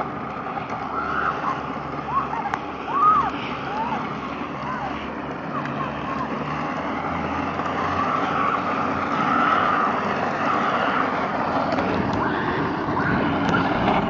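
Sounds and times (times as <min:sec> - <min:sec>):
plastic wheels rolling on asphalt: 0:00.0 - 0:14.0
wind on microphone: 0:10.5 - 0:14.0.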